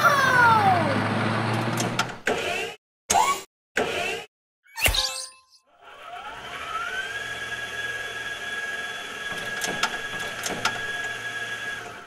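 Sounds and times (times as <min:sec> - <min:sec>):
hydraulics whining: 0:08.9 - 0:12.0.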